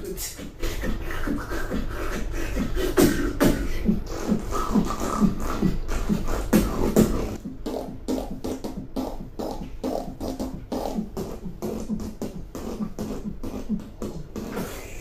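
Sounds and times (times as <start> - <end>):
person beatboxing: 0.0 - 15.0.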